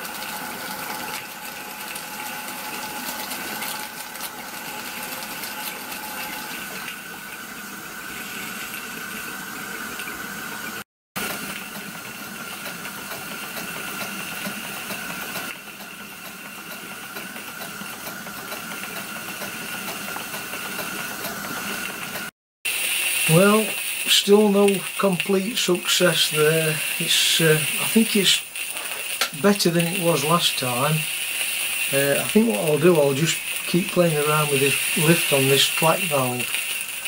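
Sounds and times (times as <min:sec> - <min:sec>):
steam hissing: 0:22.7 - 0:37.0.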